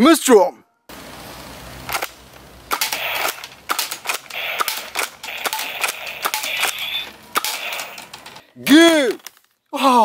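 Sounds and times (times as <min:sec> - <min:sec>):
toy blaster clicks and pops: 0:01.9 - 0:08.1.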